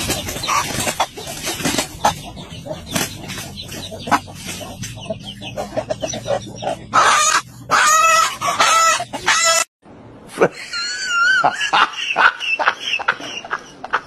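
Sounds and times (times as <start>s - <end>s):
hen squawking and clucking: 0.0s - 9.7s.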